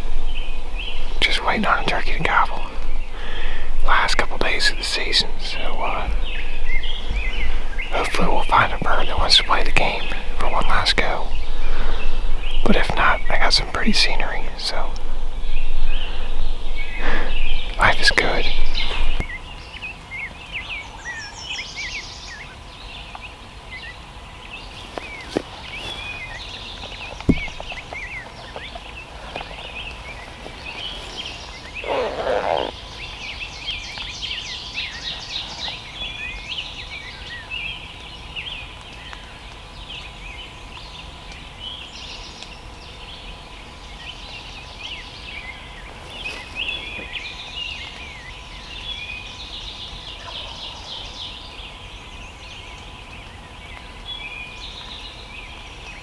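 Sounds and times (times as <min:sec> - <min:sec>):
low rough bird call: 0:00.0 - 0:19.6, 0:24.7 - 0:37.0
songbirds chirping and singing: 0:00.0 - 0:56.0.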